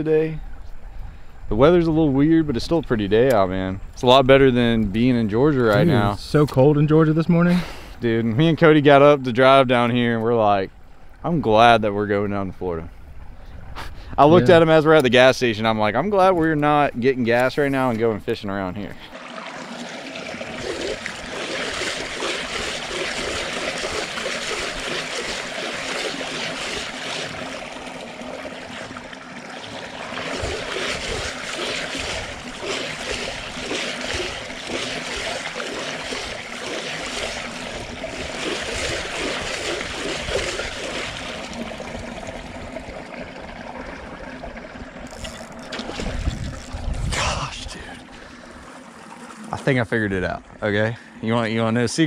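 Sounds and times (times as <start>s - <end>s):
fish thrashing in water: 19.1s - 49.5s.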